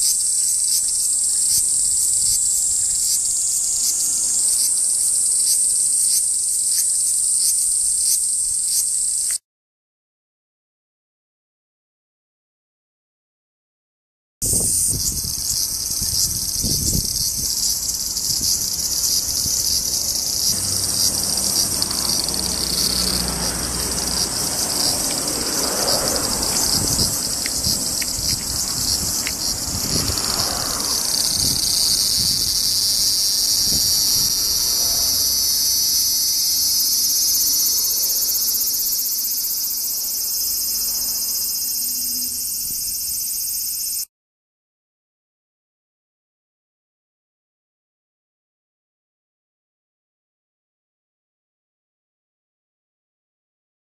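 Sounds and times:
cicada singing: 0:00.0 - 0:09.4, 0:14.4 - 0:44.1.

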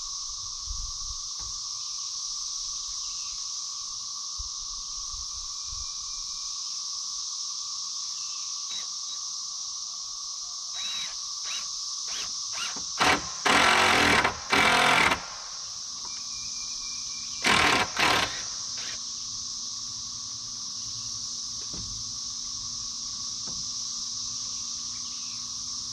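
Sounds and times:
power driver running in bursts: 0:12.2 - 0:15.5, 0:17.4 - 0:19.0.

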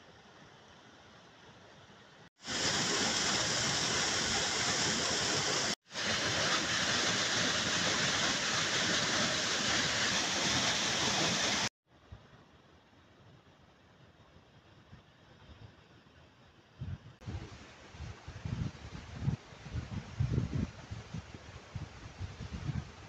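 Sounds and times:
waterfall rushing: 0:02.4 - 0:11.7.

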